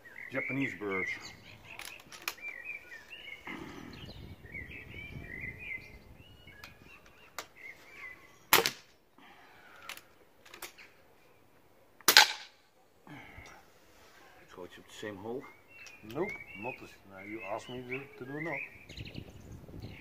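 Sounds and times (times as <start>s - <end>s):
small birds chirping: 0.0s - 12.0s, 12.6s - 20.0s
suppressed air rifle shots: 8.5s - 8.9s, 12.0s - 12.6s.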